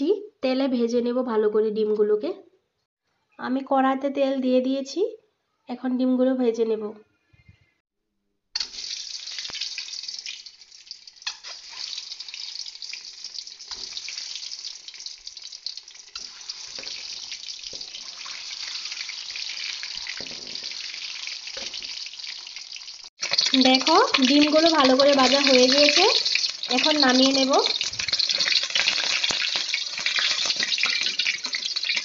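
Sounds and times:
eggs sizzling in hot oil: 8.6s - 32.0s.

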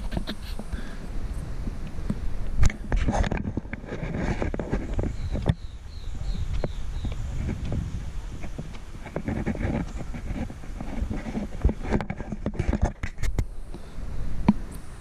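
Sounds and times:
footsteps on wooden sleepers: 0.0s - 0.9s, 1.6s - 13.3s
wind rumble on microphone: 0.0s - 15.0s.

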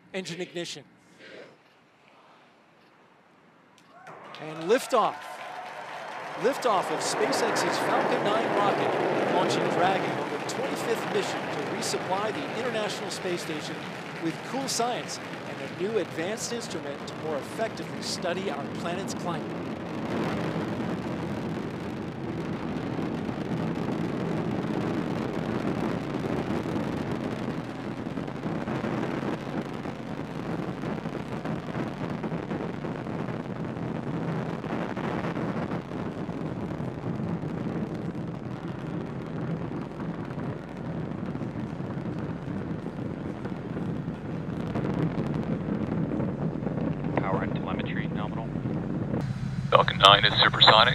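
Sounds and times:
rocket engines roaring: 4.4s - 50.9s.

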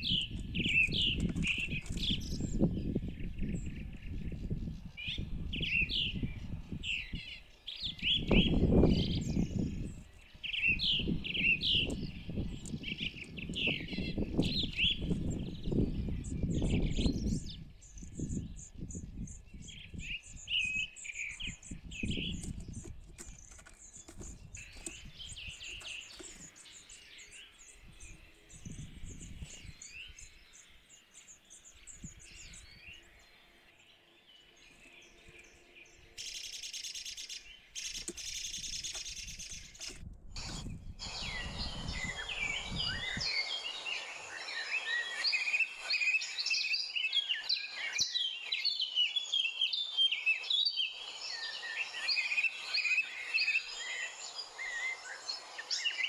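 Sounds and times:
dense bird chorus: 0.0s - 56.0s
small birds chirping: 0.0s - 56.0s
steady high hiss: 40.4s - 47.0s.

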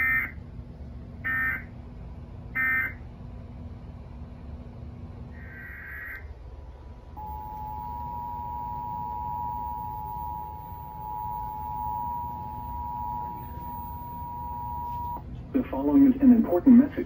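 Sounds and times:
two-tone attention signal: 7.2s - 15.2s
warbling data header burst: 7.2s - 15.2s.

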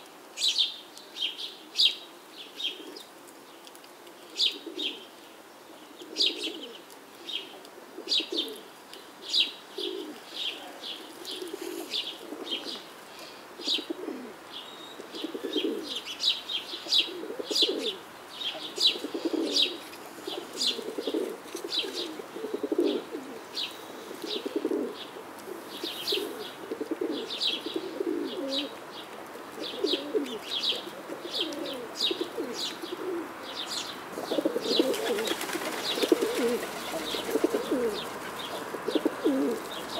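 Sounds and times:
low cooing bird calls: 0.4s - 3.2s, 4.2s - 39.9s
small birds chirping: 0.4s - 39.9s.

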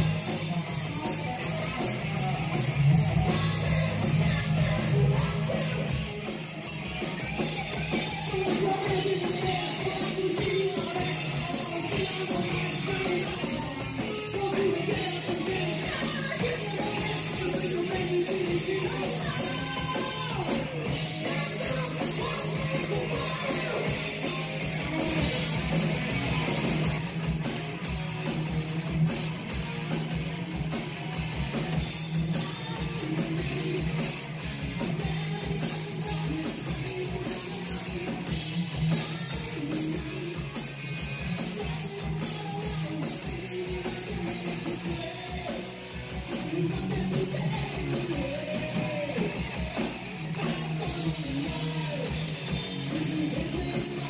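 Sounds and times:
heavy metal band playing: 0.0s - 54.0s
woman singing: 3.0s - 6.1s, 7.2s - 25.6s, 32.1s - 34.2s, 34.9s - 40.7s, 41.4s - 49.4s, 50.4s - 54.0s.

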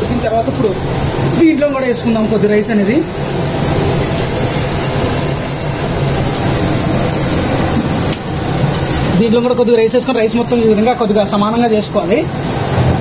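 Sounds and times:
gas burner roaring: 0.0s - 13.0s.

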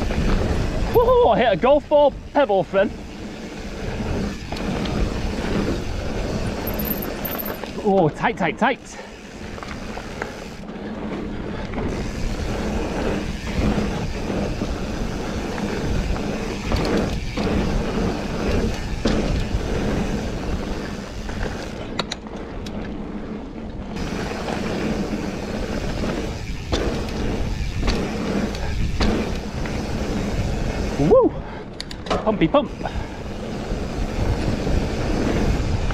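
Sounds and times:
bike clattering over bumps: 0.0s - 8.4s, 9.1s - 31.0s
bike tyres crunching on pebbles: 0.0s - 31.6s, 32.4s - 35.9s.

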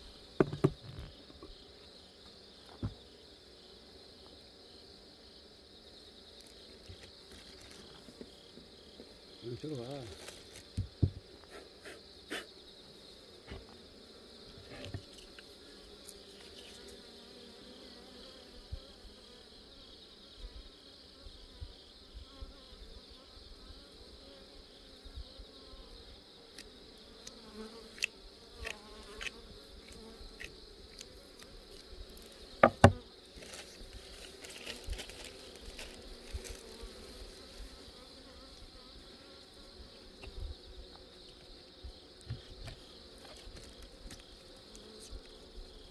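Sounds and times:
bees buzzing: 22.3s - 45.9s.

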